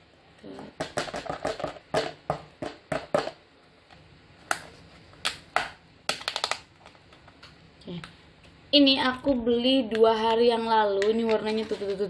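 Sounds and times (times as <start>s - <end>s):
plastic lid clicking and crackling: 4.5s - 7.2s.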